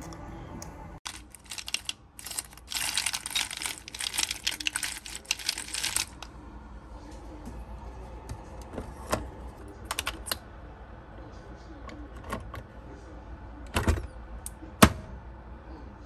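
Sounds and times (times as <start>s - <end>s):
metal capsules clinking and rattling: 1.1s - 6.2s.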